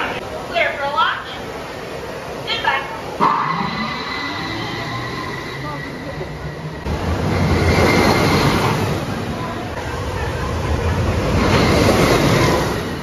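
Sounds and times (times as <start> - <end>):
roller coaster rushing past: 3.2 - 13.0.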